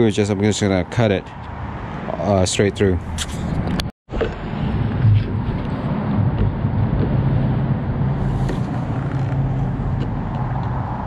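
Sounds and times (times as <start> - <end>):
low rumble: 3.0 - 10.2.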